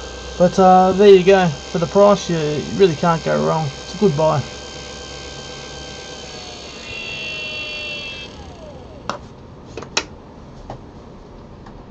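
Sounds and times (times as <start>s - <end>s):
gear motor whine: 0.0s - 9.2s.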